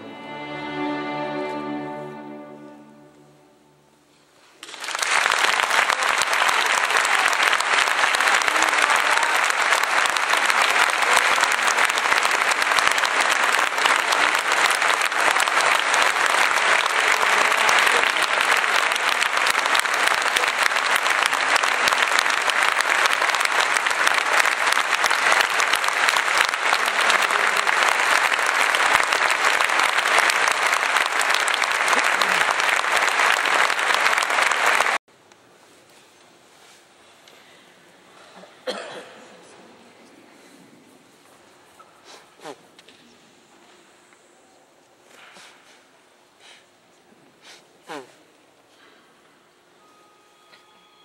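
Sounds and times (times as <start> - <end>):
string orchestra chord: 0.0 - 4.1
audience applause: 4.6 - 35.0.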